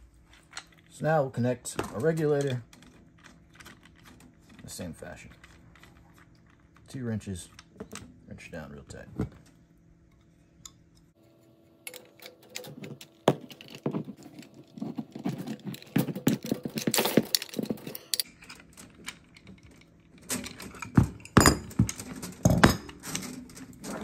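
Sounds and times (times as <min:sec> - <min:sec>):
metal clanks: 0:11.9 - 0:24.0
wrench clinking on metal fittings: 0:16.2 - 0:21.8.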